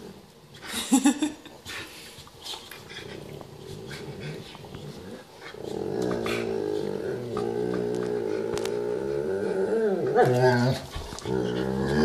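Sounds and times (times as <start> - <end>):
dogs grumbling growls: 2.8 - 12.0
dog growling loudly: 3.0 - 12.0.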